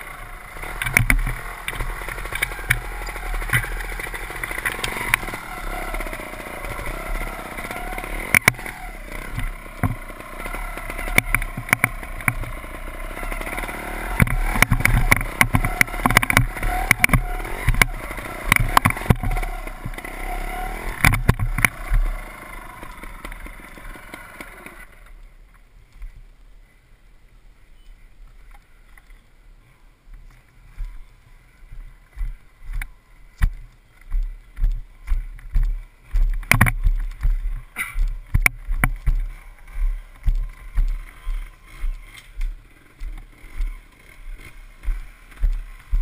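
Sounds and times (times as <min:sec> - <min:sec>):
bike rattling knocks: 0:00.7 - 0:06.1, 0:06.7 - 0:12.6, 0:14.0 - 0:22.1, 0:33.4 - 0:46.0.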